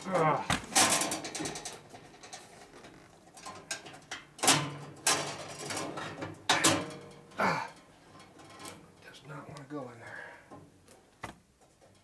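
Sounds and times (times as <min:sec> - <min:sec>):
sharp metal rattles: 0:00.7 - 0:02.7.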